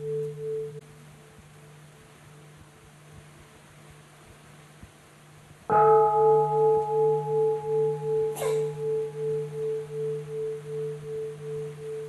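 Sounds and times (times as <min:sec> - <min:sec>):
meditation bell ringing: 0:00.0 - 0:00.8, 0:05.7 - 0:12.0.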